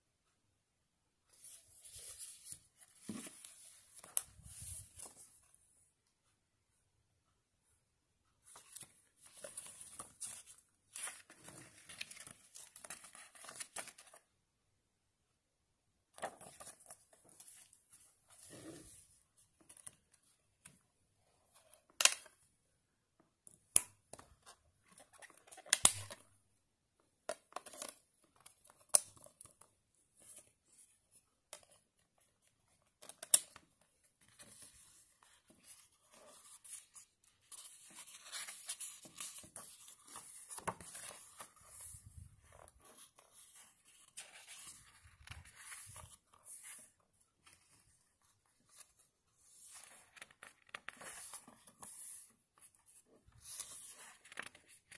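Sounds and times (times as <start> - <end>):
paper rustling: 1.3 - 5.5, 8.4 - 14.2, 32.8 - 54.9.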